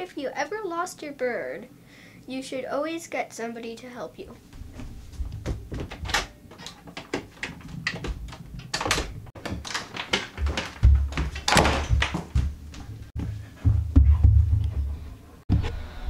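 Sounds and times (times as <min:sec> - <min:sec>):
footsteps hurrying through house: 0:04.6 - 0:15.6
deep thuds: 0:10.3 - 0:15.7.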